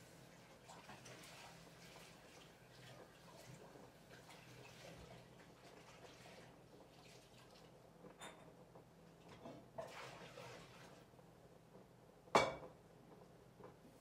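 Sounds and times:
soft rustle or splash: 0.1 - 7.8, 9.2 - 11.2.

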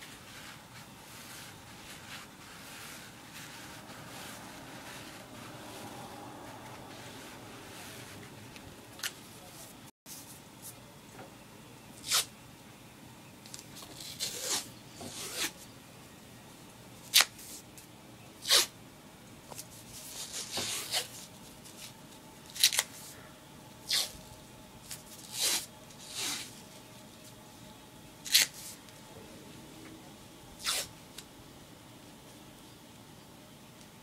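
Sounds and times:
tape ripping off roll: 12.0 - 12.3, 13.8 - 15.6, 23.9 - 24.2, 28.2 - 28.7, 30.6 - 30.9.

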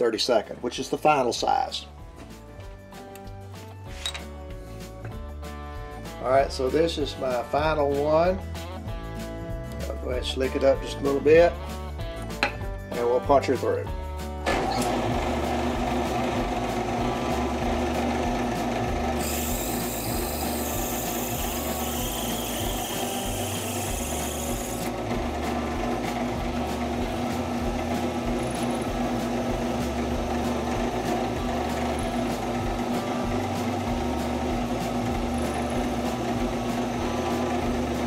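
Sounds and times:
drill press running: 14.4 - 38.0.

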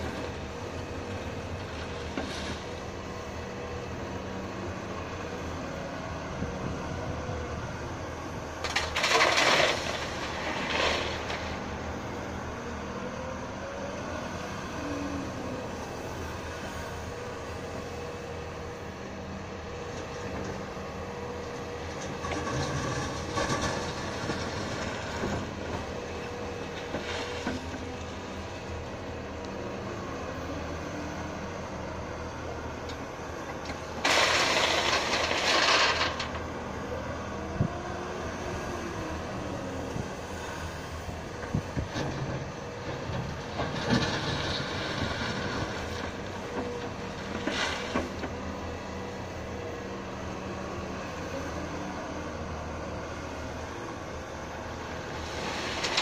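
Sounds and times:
stones pouring into trailer: 8.7 - 11.7, 34.0 - 36.4, 55.2 - 56.0
bucket scraping in gravel: 8.8 - 11.7, 34.0 - 36.4.

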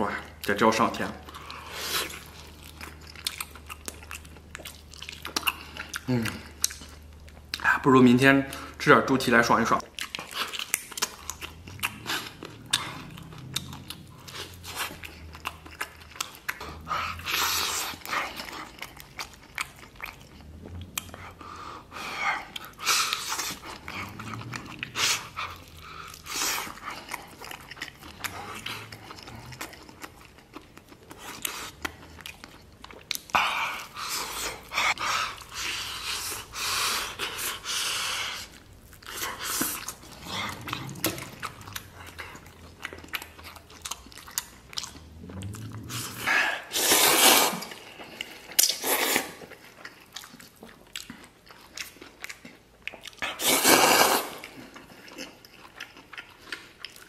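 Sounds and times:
wet chewing and smacking: 0.0 - 57.0
loud sucking slurps: 45.6 - 47.7, 53.4 - 54.4.

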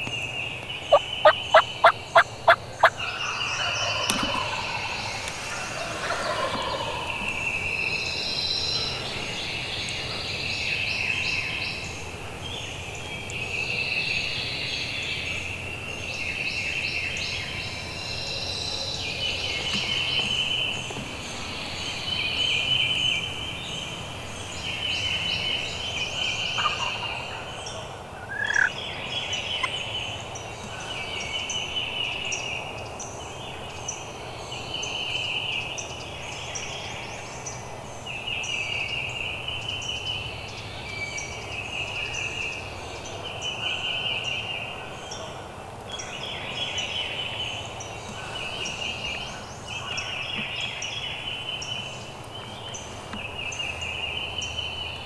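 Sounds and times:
turkeys gobbling: 0.9 - 7.6, 26.6 - 27.4, 28.2 - 28.7
loud rising turkey call: 0.9 - 8.1.

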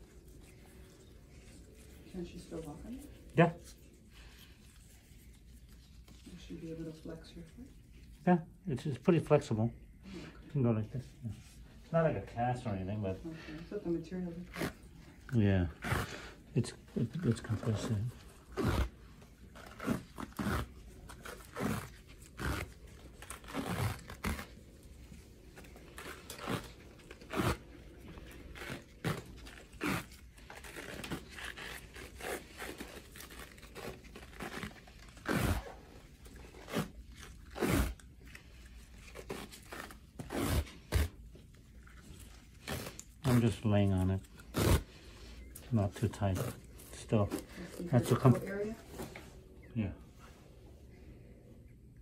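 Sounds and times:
elastic bandage crackling: 14.3 - 48.7.

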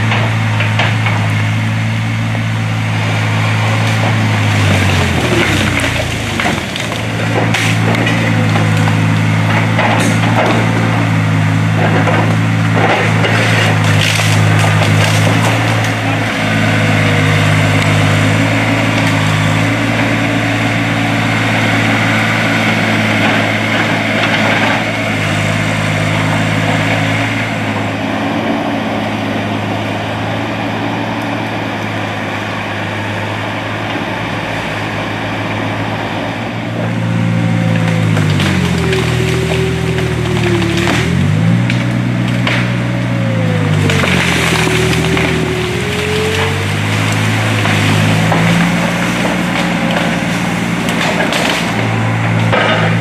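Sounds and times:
diesel engine under load: 0.0 - 53.0
wood cracking and snapping: 3.1 - 28.7, 35.6 - 53.0.

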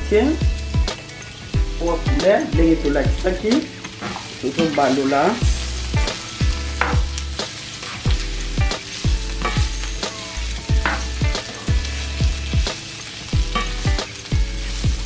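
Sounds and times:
music with deep bass beat: 0.0 - 4.1, 5.4 - 15.0
vegetables sizzling in a frying pan: 0.0 - 15.0
spatula stirring: 3.8 - 15.0.

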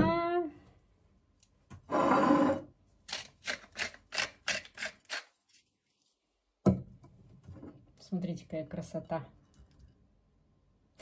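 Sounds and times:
pepper mill grinding: 3.1 - 5.3.

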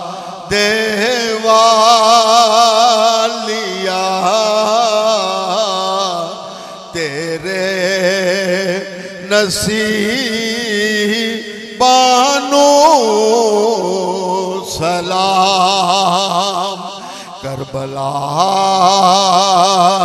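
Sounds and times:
man singing into a microphone: 0.0 - 20.0.

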